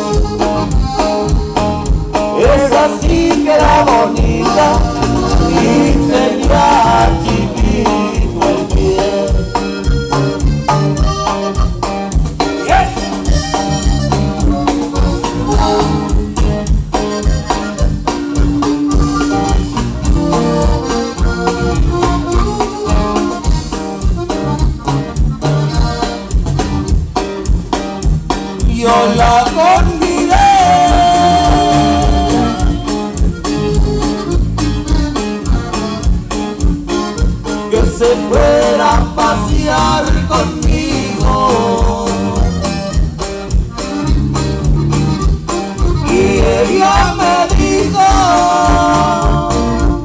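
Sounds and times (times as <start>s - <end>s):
accordion melody: 0.0s - 50.0s
live band playing: 0.0s - 50.0s.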